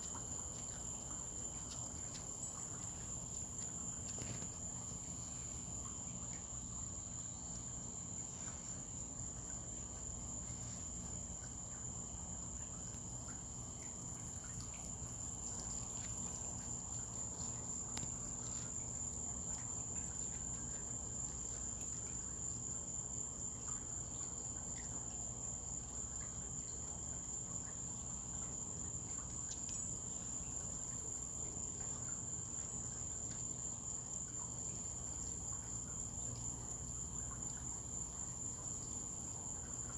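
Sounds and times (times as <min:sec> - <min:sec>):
crickets trilling: 0:00.0 - 0:39.9
low steady hum: 0:00.0 - 0:39.9.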